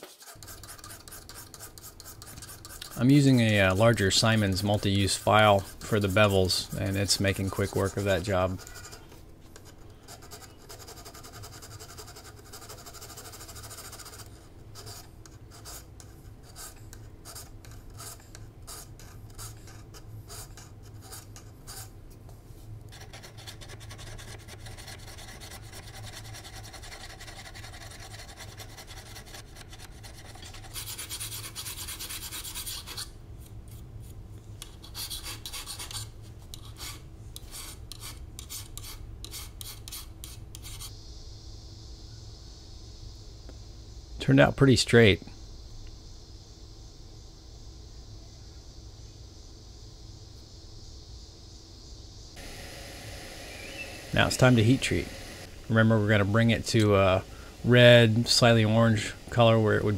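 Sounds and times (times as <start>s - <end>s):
file rasping on steel blade: 4.3s - 16.8s.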